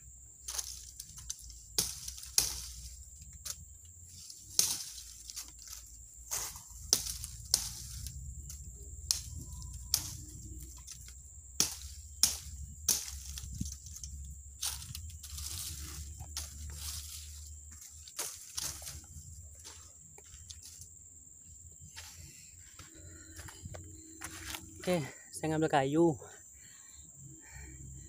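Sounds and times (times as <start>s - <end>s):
dry twigs snapping and crackling: 0.4s - 20.9s.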